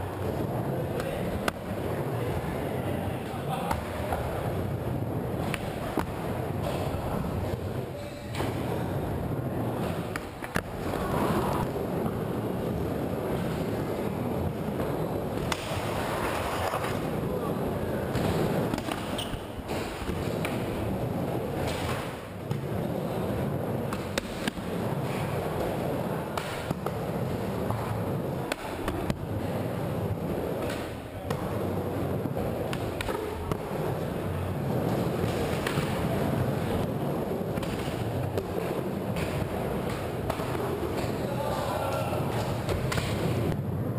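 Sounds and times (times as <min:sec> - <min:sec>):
skateboard wheels rolling on wood: 0:00.0 - 0:43.9
skateboard clacks: 0:18.0 - 0:43.6.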